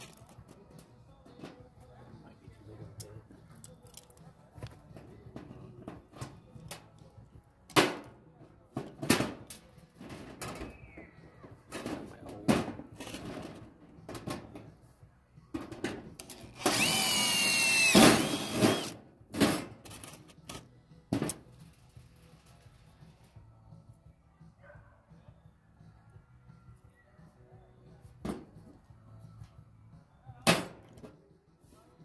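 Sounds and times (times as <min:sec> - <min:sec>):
power tool whining: 0:16.6 - 0:19.0
tools and parts clattering: 0:17.6 - 0:20.6.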